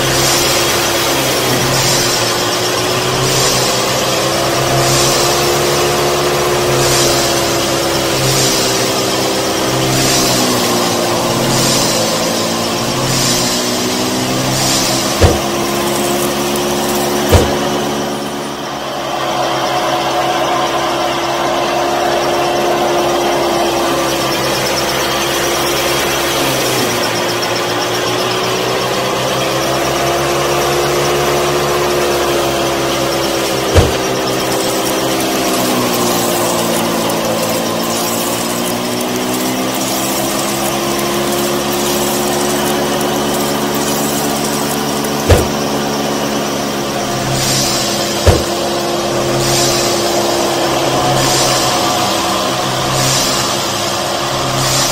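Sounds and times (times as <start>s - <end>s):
small electric motor whining: 0.0s - 54.9s
sharp knocks: 15.1s - 16.2s, 17.2s - 18.0s, 33.7s - 34.3s, 45.3s - 45.8s, 48.2s - 48.7s.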